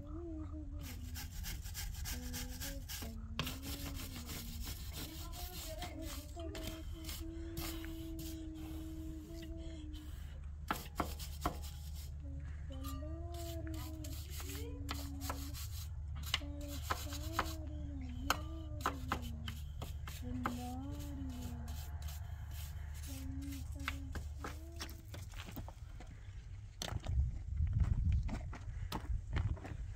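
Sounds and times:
person humming a tune: 0.0s - 10.4s, 11.9s - 25.2s
steady low hum: 0.0s - 29.9s.

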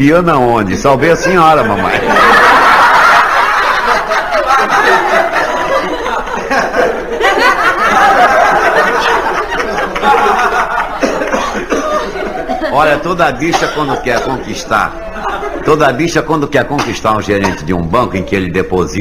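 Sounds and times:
audience laughing: 1.2s - 16.2s.

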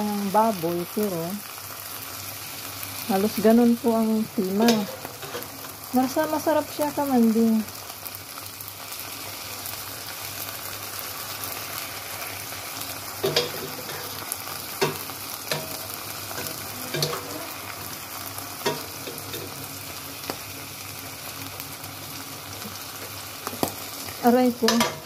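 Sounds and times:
onions and meat sizzling: 0.0s - 25.0s
metal spatula knocking pan: 13.2s - 14.1s, 14.8s - 17.3s, 24.6s - 25.0s.

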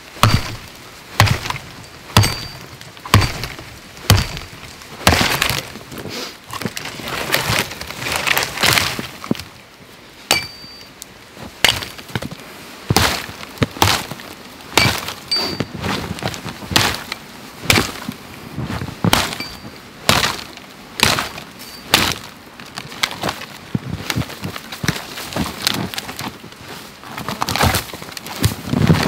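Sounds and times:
branches snapping and rustling: 0.0s - 9.7s, 11.0s - 29.0s
hatchet chopping log: 0.2s - 1.6s, 2.2s - 5.7s, 11.6s - 12.0s, 12.9s - 14.2s, 14.8s - 15.7s, 16.7s - 17.1s, 17.7s - 18.0s, 19.1s - 22.3s
high metallic ring: 10.4s - 10.9s, 15.3s - 15.7s.

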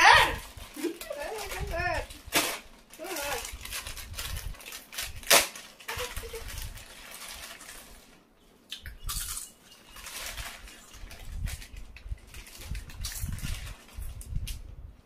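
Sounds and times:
chip packets crinkling: 0.4s - 8.2s, 9.1s - 14.4s
chips crunching: 8.7s - 13.8s.

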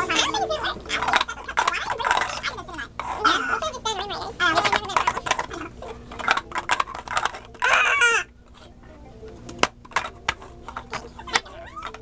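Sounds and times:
plastic cups clacking on table: 0.0s - 3.5s, 4.4s - 8.3s
high-pitched vocal squeal: 7.6s - 8.3s.

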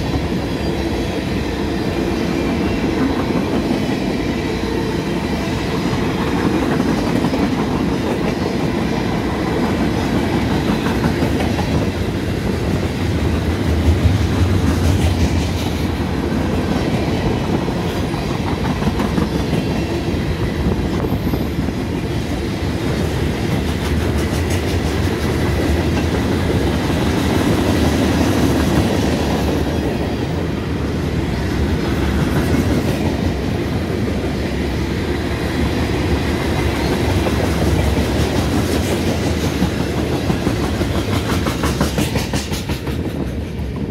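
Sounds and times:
freight train rumble: 0.0s - 43.9s
steel wheels clicking over rail joints: 36.5s - 43.9s.

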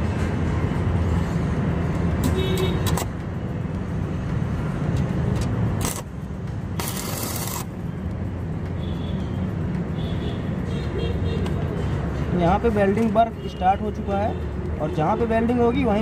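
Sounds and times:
welding arc crackling and hissing: 5.7s - 7.8s.

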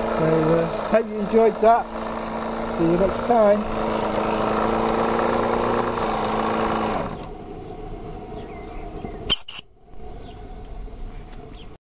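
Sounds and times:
model steam engine running: 0.0s - 7.3s.

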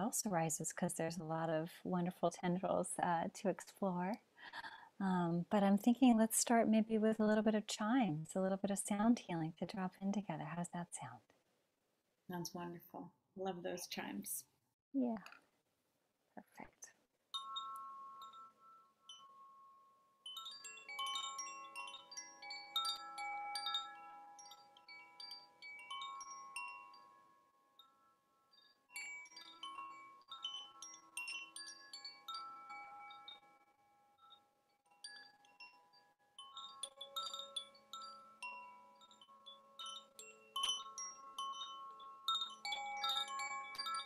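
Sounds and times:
wind chimes ringing: 17.3s - 44.0s.

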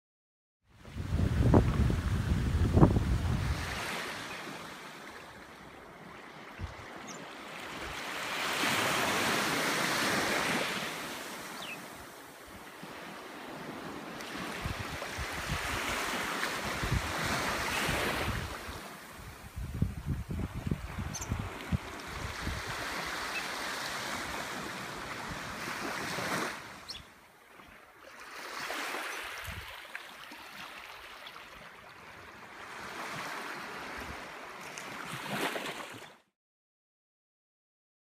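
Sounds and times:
small waves washing ashore: 0.8s - 36.2s
wind buffeting microphone: 0.9s - 3.9s, 16.6s - 23.1s.

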